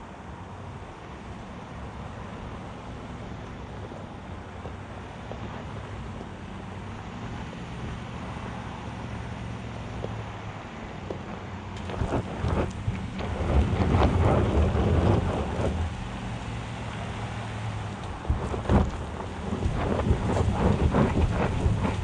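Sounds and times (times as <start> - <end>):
truck engine running low: 0.1 - 22.0
tyres crunching on loose rock: 17.9 - 22.0.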